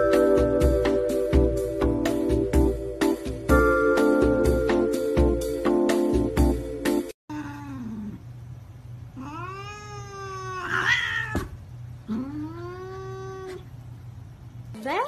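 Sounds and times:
piano music: 0:00.0 - 0:07.2
cat yowling: 0:09.2 - 0:11.5, 0:12.1 - 0:13.7
cat hissing: 0:09.2 - 0:13.7.

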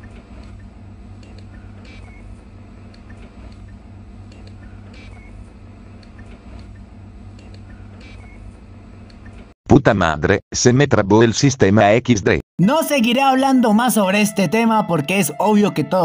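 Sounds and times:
low electrical hum: 0:00.0 - 0:09.5.

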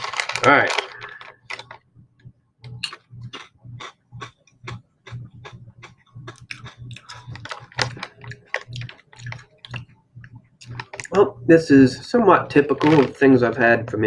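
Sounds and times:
chips being chewed: 0:00.0 - 0:01.8, 0:02.7 - 0:09.9, 0:10.6 - 0:11.2.

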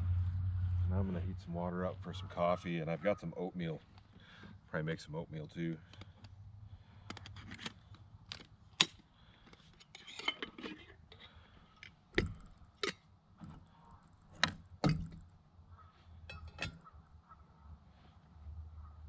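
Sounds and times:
metal cookware clinking and knocking: 0:16.3 - 0:16.9.

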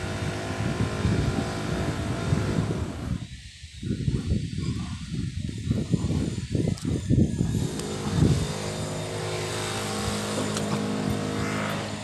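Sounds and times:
motor humming: 0:00.0 - 0:03.2, 0:07.3 - 0:12.0
wind buffeting microphone: 0:00.0 - 0:12.0.

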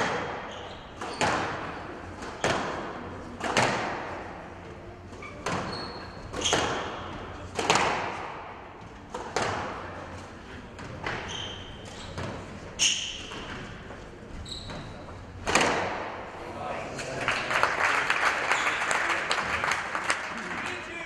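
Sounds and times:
squash ball hits echoing: 0:00.0 - 0:04.6, 0:05.2 - 0:10.0, 0:15.3 - 0:16.4
shoes squeaking on court floor: 0:00.1 - 0:02.6, 0:05.0 - 0:07.5, 0:10.1 - 0:15.6, 0:18.5 - 0:18.9.

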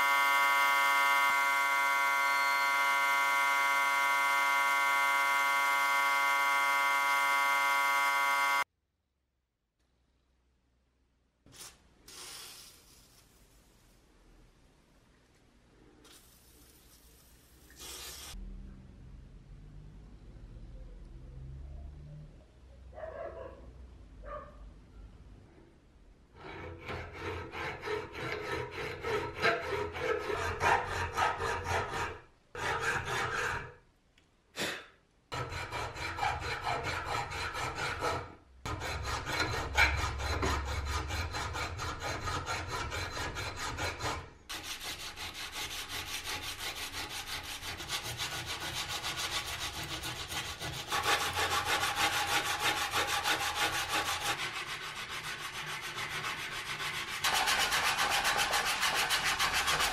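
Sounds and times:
hand file scraping steel: 0:26.3 - 0:33.8, 0:35.3 - 0:59.9
sandpaper rubbing on metal: 0:38.9 - 0:59.9.

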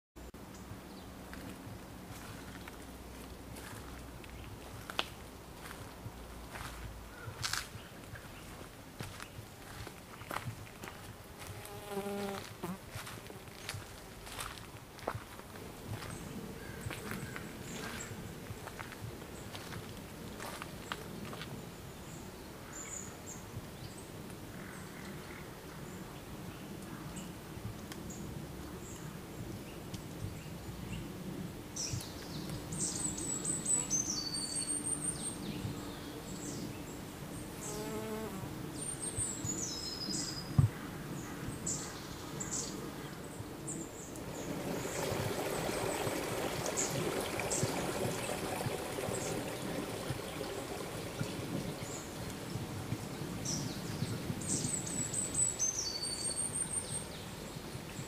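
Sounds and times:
even rushing hiss: 0:43.9 - 0:53.7.

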